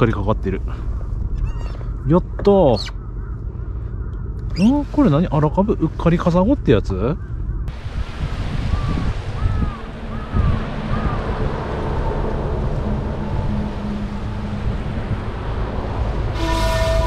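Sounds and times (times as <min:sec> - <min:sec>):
wind buffeting microphone: 0:00.0 - 0:17.0
short chirping calls: 0:01.4 - 0:02.0, 0:02.6 - 0:03.0, 0:04.4 - 0:04.9
small waves washing onto sand: 0:07.7 - 0:12.6
steady horn-like tone: 0:10.6 - 0:17.0.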